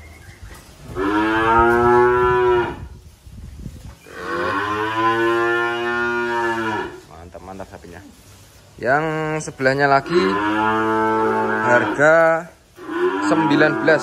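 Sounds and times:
calf mooing: 1.0 - 2.8, 4.2 - 7.0, 10.1 - 12.1, 12.8 - 14.0.

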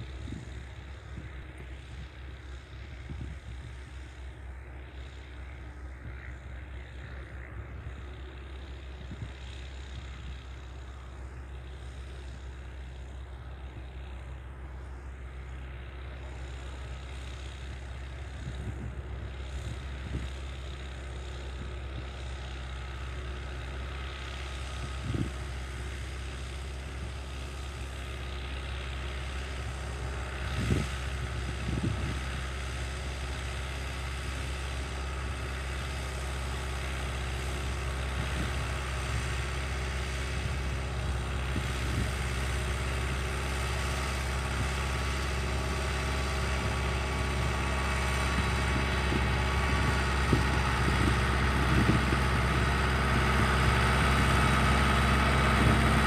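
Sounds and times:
distant tractor engine running: 0.0 - 56.0.

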